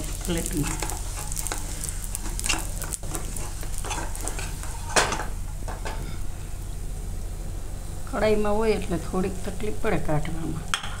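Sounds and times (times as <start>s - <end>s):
metal spatula scraping pan: 0.0s - 5.2s
oil sizzling: 0.0s - 11.0s.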